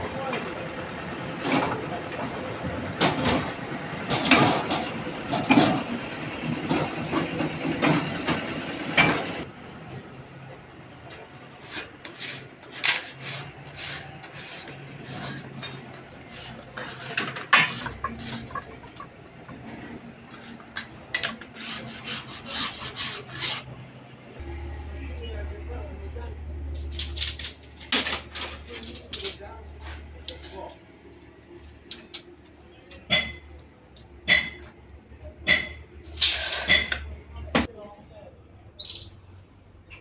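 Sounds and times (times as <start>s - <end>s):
metallic clanks and creaks: 3.0s - 10.0s
steel leaf springs scraping: 11.6s - 19.1s, 26.7s - 30.7s, 35.5s - 37.0s
machine hum: 24.2s - 30.2s.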